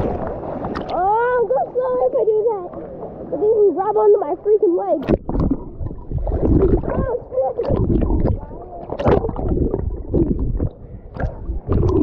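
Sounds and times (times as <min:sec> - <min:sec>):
pool water sloshing and splashing: 0:00.0 - 0:12.0
deep rumble: 0:07.7 - 0:12.0.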